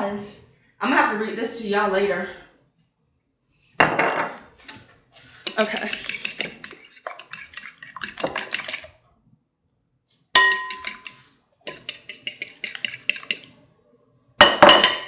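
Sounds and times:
fork beating eggs in glass bowl: 5.3 - 9.0, 10.4 - 13.6
glass bowl ringing: 10.4 - 11.1.

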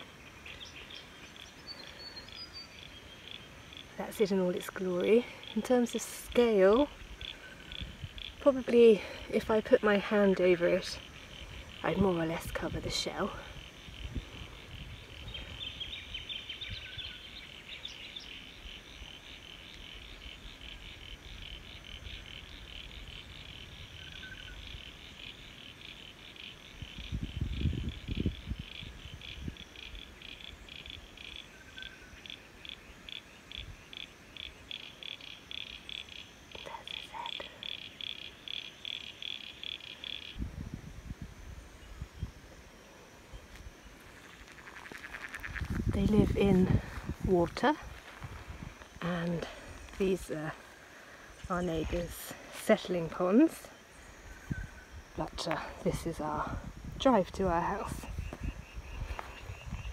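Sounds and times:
frog trilling: 5.4 - 8.5, 18.4 - 40.4, 44.0 - 49.0
wind rumble on microphone: 6.3 - 10.2, 10.8 - 19.2, 26.5 - 31.1, 40.2 - 42.7, 43.3 - 50.6, 54.2 - 59.9.

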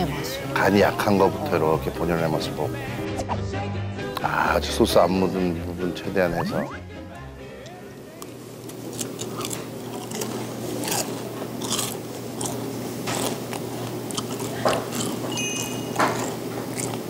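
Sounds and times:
crunching fried chicken: 8.7 - 17.0.

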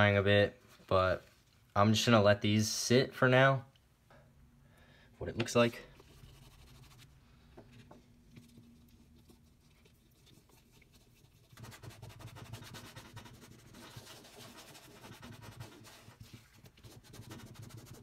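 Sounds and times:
cloth rubbing on leather: 8.4 - 18.0.

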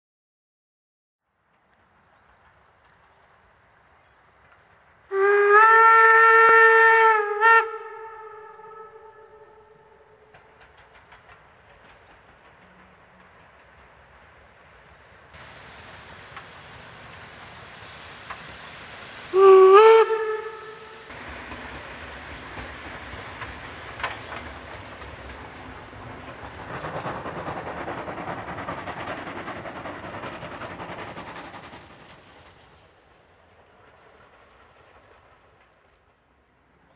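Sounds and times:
steam locomotive rumble: 1.4 - 36.9
steam whistle blast: 5.1 - 9.9, 19.3 - 21.1
faint hiss: 7.8 - 36.9
train wheels clattering over rail joints: 9.8 - 19.3, 21.1 - 36.9.

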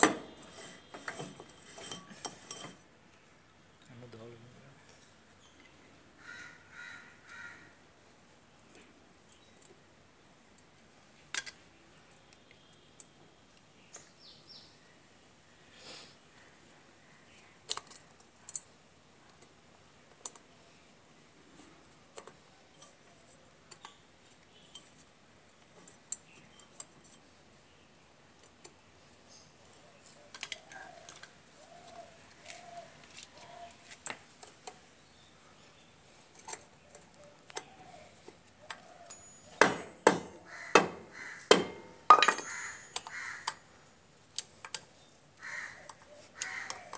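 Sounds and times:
steel rod tapping metal: 39.1 - 43.1
sharp metal knock: 39.5 - 42.7.

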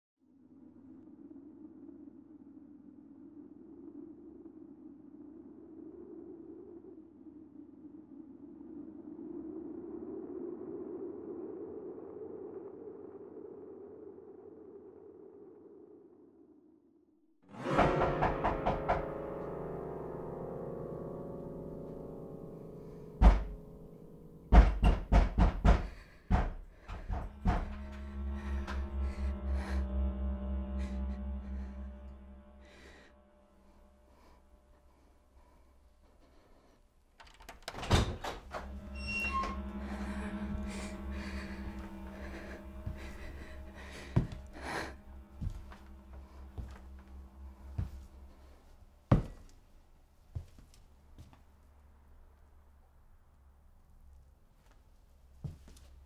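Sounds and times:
musical chord ringing: 17.5 - 24.6, 27.0 - 34.6, 38.5 - 48.8
low steady hum: 26.3 - 36.7.

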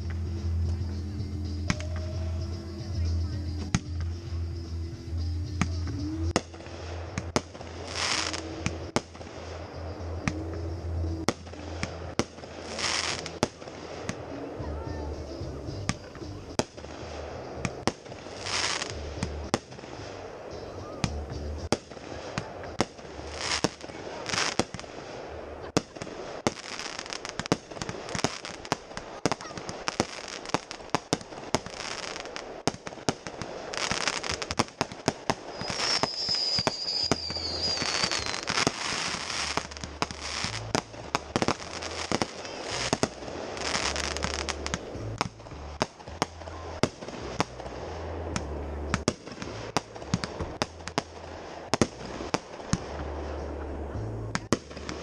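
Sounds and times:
fireworks bangs and crackles: 0.0 - 55.0
hissing rising shells: 16.6 - 52.8
falling whistle: 35.5 - 38.5.

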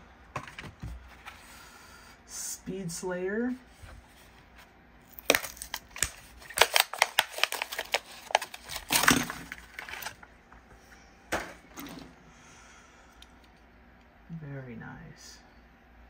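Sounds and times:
plastic blister pack crackling: 5.1 - 10.2.

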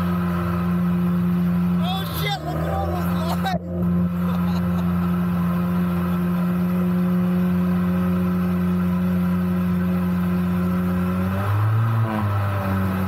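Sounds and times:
jet boat engine drone: 0.0 - 13.0.

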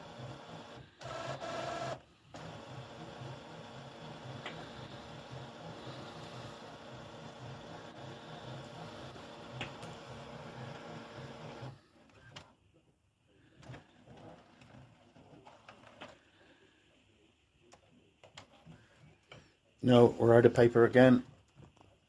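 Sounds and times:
printer paper feed whirring: 0.0 - 12.5, 13.4 - 16.7.

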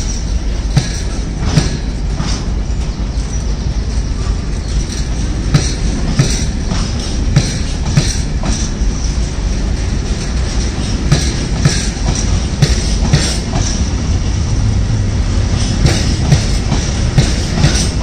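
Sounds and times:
train wagons rumbling past: 0.0 - 18.0
wheels clacking over track: 15.5 - 18.0.

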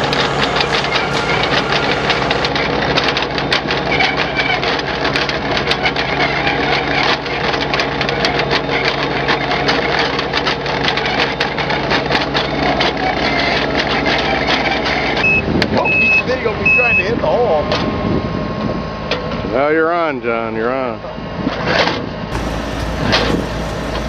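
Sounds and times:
heavy engine running: 0.0 - 24.0
high reversing beep: 15.2 - 17.1.

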